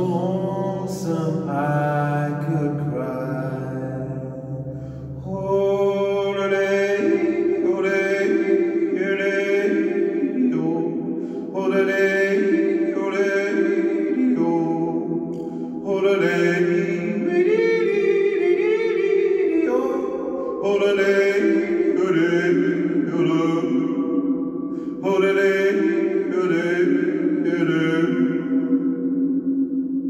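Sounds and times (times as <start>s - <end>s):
man yodelling in tunnel echo: 0.0s - 29.7s.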